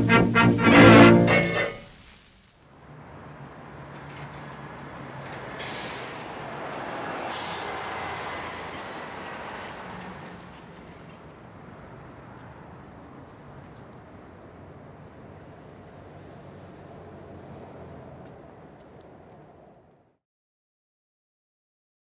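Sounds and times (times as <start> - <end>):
vehicle passing: 0.0 - 1.9, 2.9 - 11.1
short bursts of high hiss: 0.0 - 2.6.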